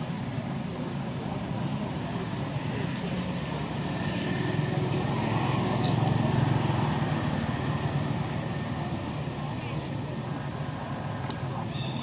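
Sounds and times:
vehicle engine passing by: 0:02.8 - 0:09.4.

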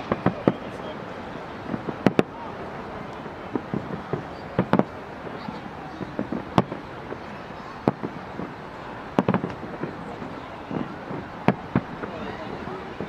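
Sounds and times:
firework shells bursting: 0:09.1 - 0:10.0.

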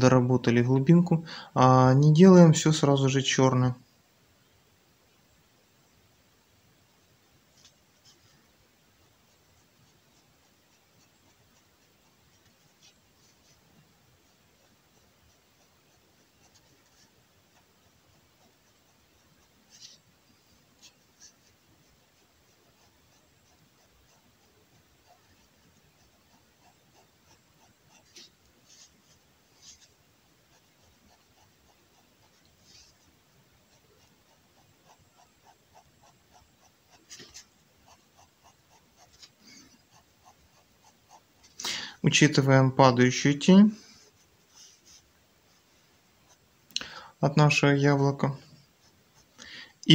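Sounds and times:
pen scratching on paper: 0:07.5 - 0:41.6, 0:43.8 - 0:46.5, 0:48.3 - 0:49.4.

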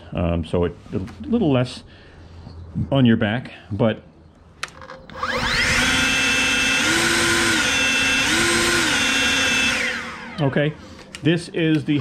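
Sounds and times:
leaf blower whining: 0:05.1 - 0:11.2.

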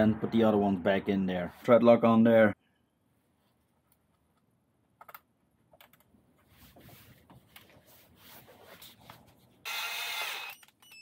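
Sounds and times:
cordless drill whirring: 0:09.6 - 0:11.0.

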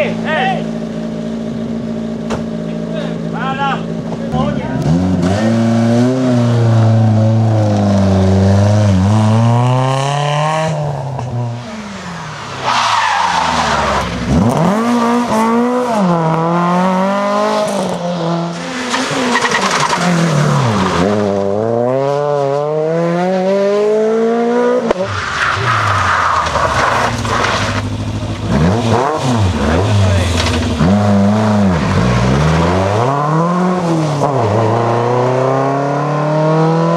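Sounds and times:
rally car engines at full throttle: 0:00.0 - 0:36.9.

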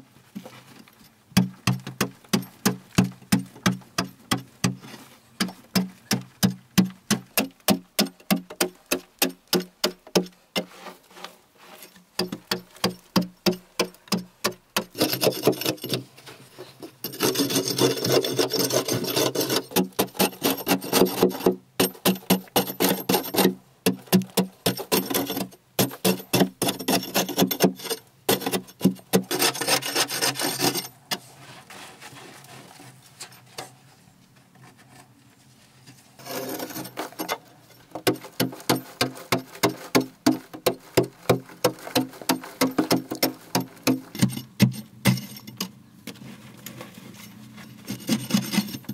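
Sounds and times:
hoe scraping earth: 0:10.6 - 0:13.0, 0:14.8 - 0:33.5, 0:34.6 - 0:48.9
hoe chopping into earth: 0:37.9 - 0:45.3.

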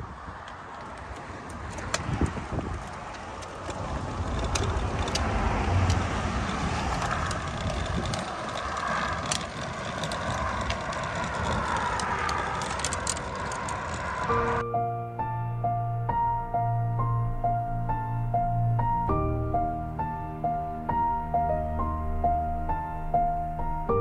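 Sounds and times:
wagon wheels rolling and rattling: 0:00.0 - 0:14.6
low rumble: 0:04.0 - 0:24.0.

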